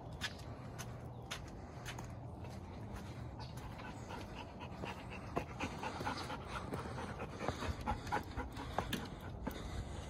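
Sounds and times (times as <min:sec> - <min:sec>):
dog panting: 0:02.5 - 0:10.0.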